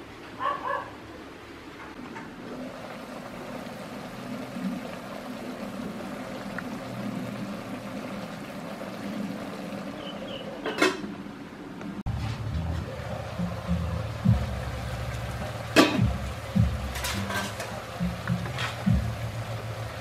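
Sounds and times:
sauce bubbling in a pot: 2.4s - 10.6s, 12.9s - 20.0s
metal pot lid clanking: 16.8s - 17.8s.

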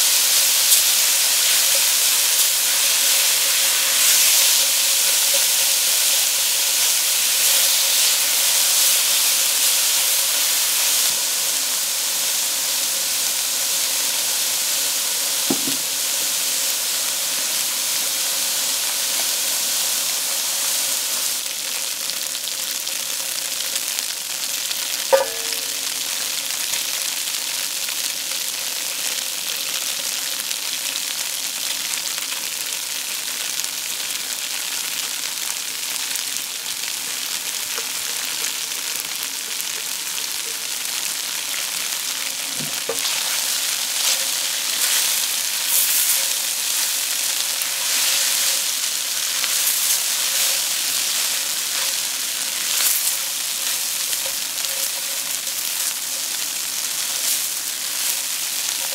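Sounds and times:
food sizzling in oil: 0.0s - 58.9s
sharp metallic clink: 25.1s - 25.9s
spatula scraping a wok: 42.7s - 58.9s.

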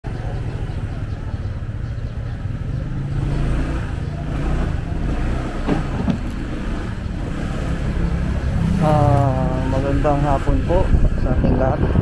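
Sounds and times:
motorcycle engine pulling away: 2.6s - 10.1s.

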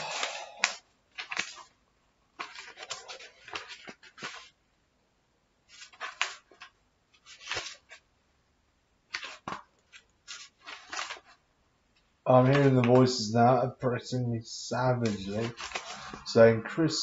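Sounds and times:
book pages rustling and turning: 0.0s - 4.6s, 5.7s - 8.1s, 9.1s - 11.4s, 12.4s - 13.1s, 14.9s - 16.4s.

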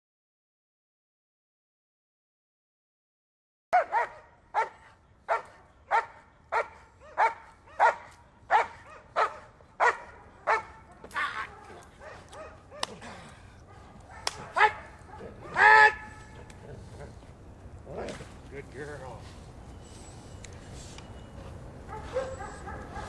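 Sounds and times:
dog barking: 3.7s - 13.0s, 13.7s - 16.2s, 21.9s - 23.0s.

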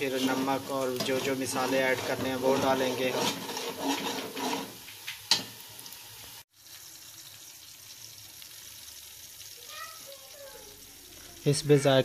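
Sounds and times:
metal spoon stirring: 0.0s - 5.4s
onions sizzling in oil: 0.0s - 12.0s.

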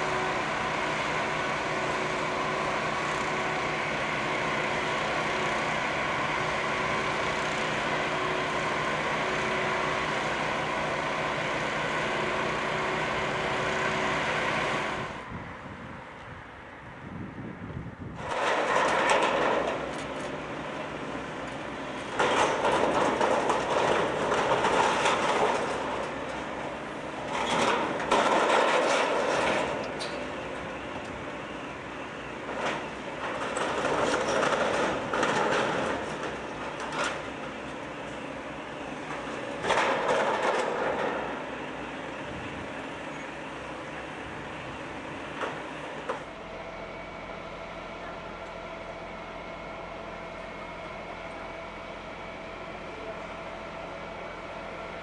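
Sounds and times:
fire truck diesel engine drone: 0.0s - 55.0s.

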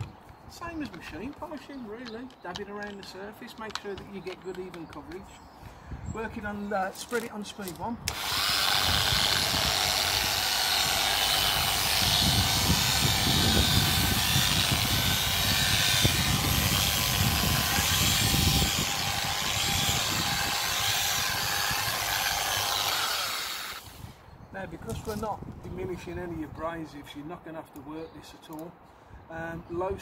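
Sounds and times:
polisher motor whirr: 8.1s - 24.0s.

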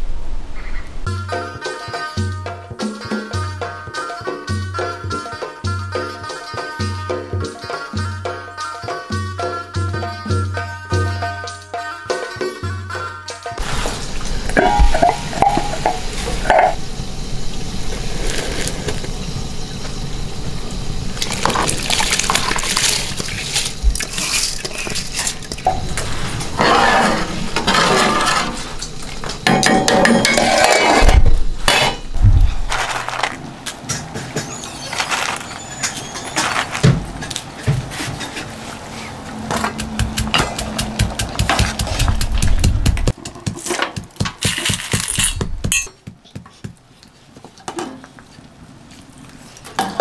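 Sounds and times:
low engine-like hum: 13.9s - 23.0s
metal lid clinking: 14.6s - 16.8s
rice pouring into water: 21.2s - 24.5s
stone pestle pounding in mortar: 39.5s - 46.8s.

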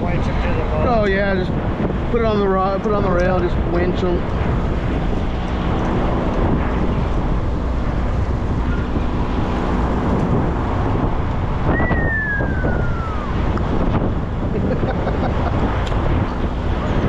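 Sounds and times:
low rumble: 0.0s - 17.0s
wind noise: 0.0s - 17.0s
thin falling whistle: 11.7s - 13.4s.

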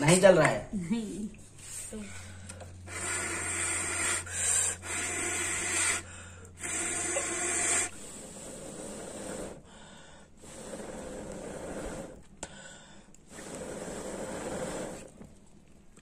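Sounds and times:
person blowing hard into fire: 2.8s - 15.3s.

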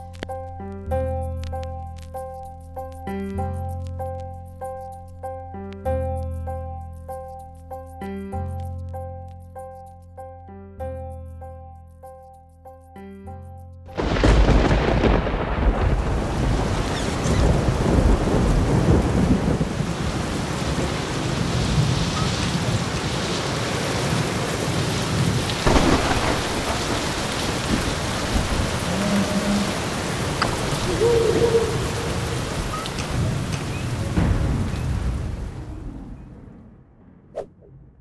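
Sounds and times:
thunder crash: 14.0s - 21.0s, 25.6s - 29.5s, 31.8s - 38.0s
low rumble of thunder: 14.0s - 22.8s, 25.2s - 38.0s
heavy rain: 14.0s - 36.4s.

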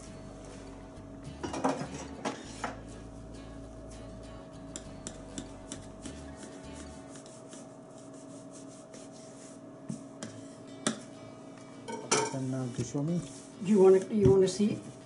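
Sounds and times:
knife scraping through dough: 5.6s - 10.7s.

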